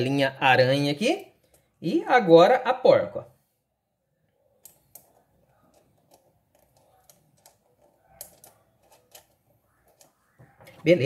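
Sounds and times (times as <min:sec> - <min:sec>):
small metal clicks and taps: 0:04.6 - 0:10.2.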